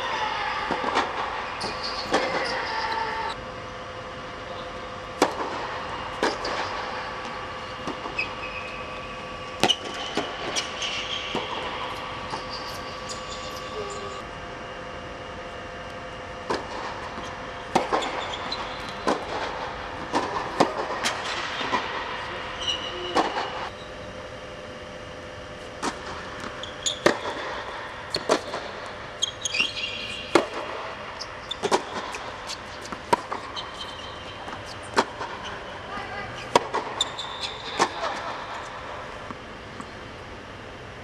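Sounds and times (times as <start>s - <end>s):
mechanical hum: 0.0s - 41.0s
tennis shoes squeaking: 1.5s - 3.4s, 7.6s - 14.2s, 17.2s - 19.1s, 22.6s - 23.9s, 25.8s - 27.4s, 28.1s - 38.7s
racket striking tennis ball: 5.1s - 8.3s, 9.6s - 12.7s, 17.7s - 22.0s, 25.8s - 28.8s, 29.7s - 30.9s, 31.6s - 35.6s, 36.5s - 39.4s
tennis ball bouncing: 5.1s - 8.6s, 9.6s - 13.7s, 16.5s - 21.8s, 25.8s - 30.9s, 31.5s - 35.6s, 36.4s - 39.9s.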